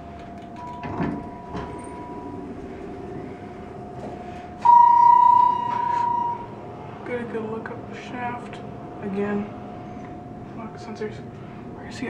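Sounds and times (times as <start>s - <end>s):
elevator doors sliding open: 0.0s - 6.7s
steady hum: 0.0s - 12.0s
loud electronic beep: 4.6s - 6.6s.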